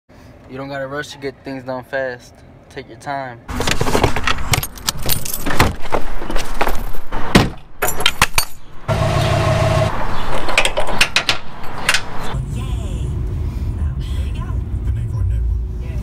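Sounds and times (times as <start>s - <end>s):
metal clanks and rattles: 3.5s - 8.7s, 10.3s - 12.1s.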